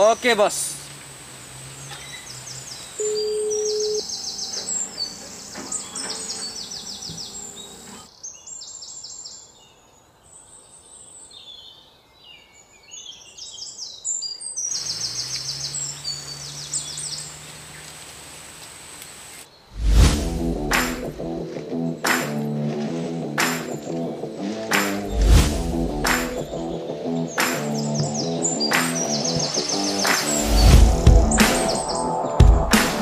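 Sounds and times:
trilling bird calls: 1.7s - 9.8s, 12.5s - 19.8s, 25.9s - 32.3s
steady high whine: 19.8s - 21.5s, 24.7s - 28.1s.

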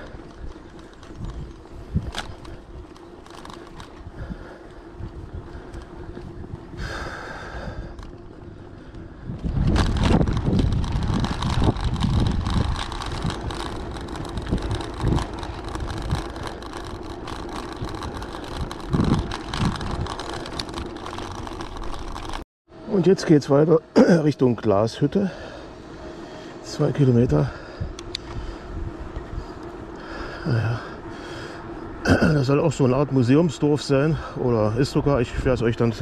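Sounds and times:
wind buffeting microphone: 0.0s - 22.4s, 27.2s - 32.0s
bicycle tyres rumbling on path: 0.0s - 36.0s.

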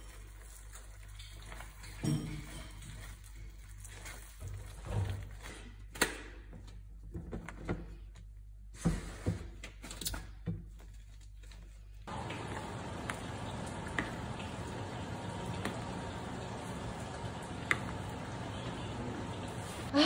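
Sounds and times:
steady low hum: 12.1s - 20.0s.

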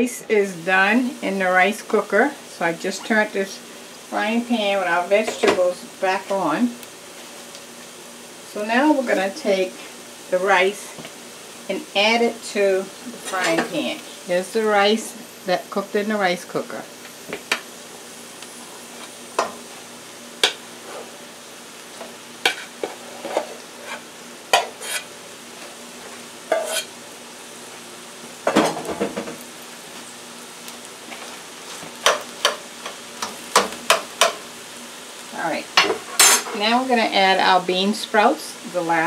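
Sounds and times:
low sizzle from pan: 0.0s - 39.0s
metal spoon scraping pots: 26.5s - 26.9s.

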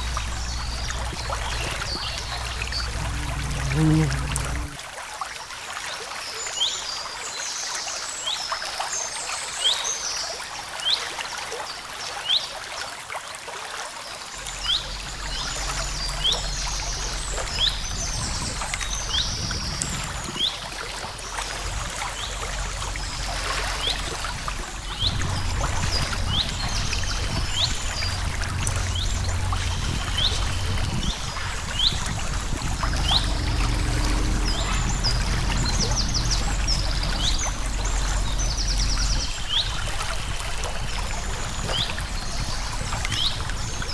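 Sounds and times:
birds singing: 0.0s - 4.8s, 32.8s - 43.9s
low rumble: 0.0s - 4.8s, 14.4s - 43.9s
creek water trickling: 0.0s - 43.9s.

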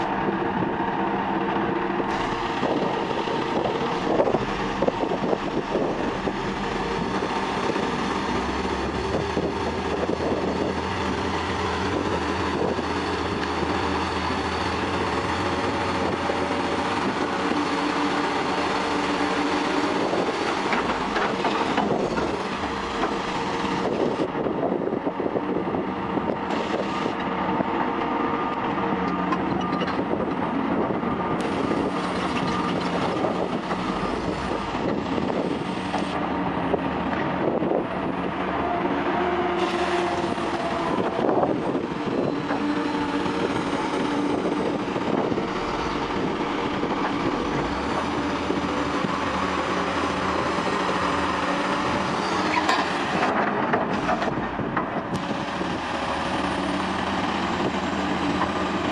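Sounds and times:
diesel engine and hydraulic whine: 0.0s - 58.9s
metallic clanking and squealing: 51.9s - 53.1s.

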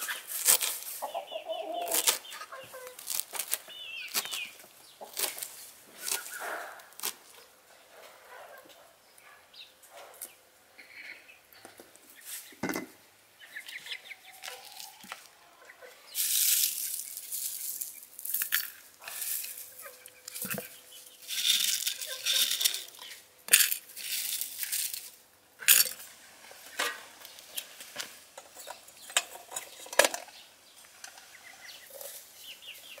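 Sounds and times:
dried flowers rustling: 0.0s - 1.1s, 1.8s - 7.4s, 14.3s - 15.4s, 16.1s - 25.2s
hens clucking: 0.0s - 6.9s, 13.4s - 16.2s, 19.0s - 23.2s.

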